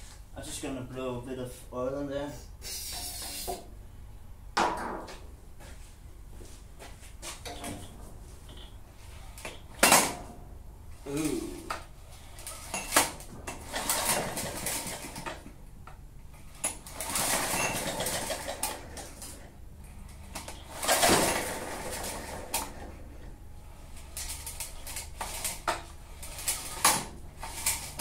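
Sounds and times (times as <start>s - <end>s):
lawn mower engine turning over: 11.1s - 28.0s.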